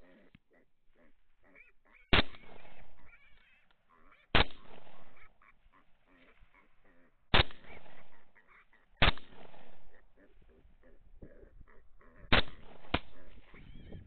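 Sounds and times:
rifle shots with echo: 2.1 - 3.1, 4.3 - 5.4, 7.3 - 8.4, 9.0 - 10.2, 12.3 - 13.5
hogs squealing and grunting: 3.0 - 4.3.

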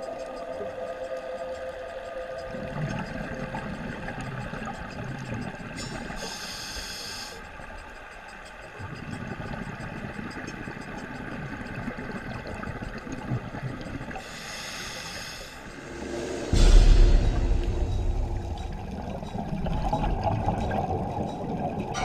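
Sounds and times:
low underwater rumble: 15.6 - 22.0.

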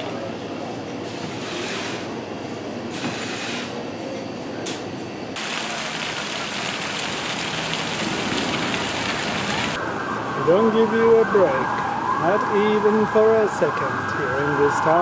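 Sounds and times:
fountain jets spraying: 5.4 - 9.8.

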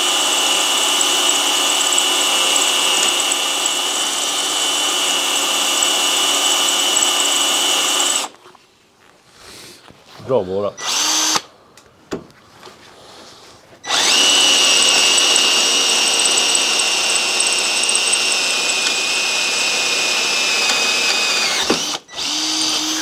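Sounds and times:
power drill whining: 0.0 - 8.4, 10.8 - 11.5, 13.8 - 23.0.

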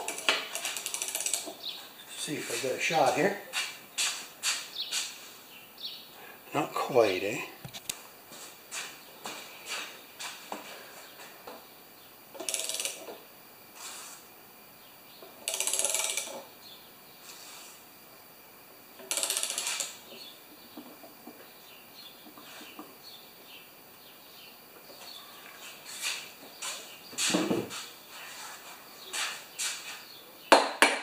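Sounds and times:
ratchet clicking: 0.0 - 1.5, 12.4 - 13.0, 15.4 - 16.4, 19.0 - 20.0.

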